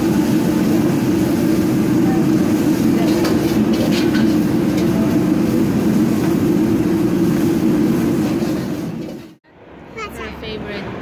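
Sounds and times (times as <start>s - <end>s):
gas burner roaring: 0.0s - 9.4s
ladle scraping a wok: 2.5s - 6.6s, 7.3s - 9.4s.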